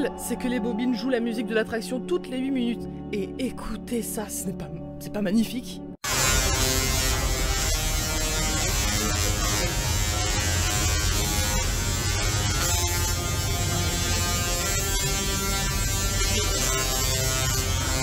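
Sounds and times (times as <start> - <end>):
musical tesla coils buzzing melody: 6.1 - 18.0.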